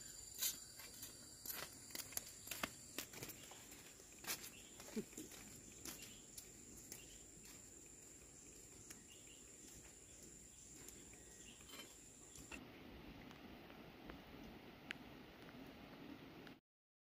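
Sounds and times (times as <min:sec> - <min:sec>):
high-pitched insect call: 0:00.0 - 0:12.6.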